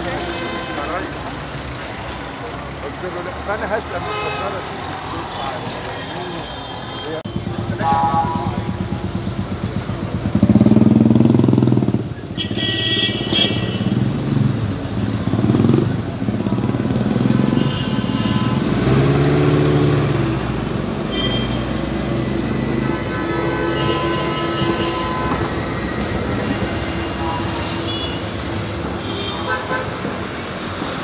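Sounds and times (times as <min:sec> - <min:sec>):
street traffic: 0:00.0 - 0:31.0
tram motors and wheels humming: 0:13.9 - 0:31.0
high-pitched squeal: 0:20.9 - 0:28.7.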